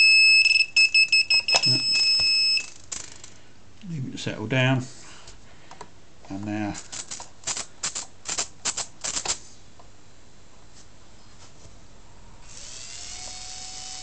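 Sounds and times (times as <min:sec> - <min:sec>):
small electric motor whine: 0:12.4 - 0:14.0.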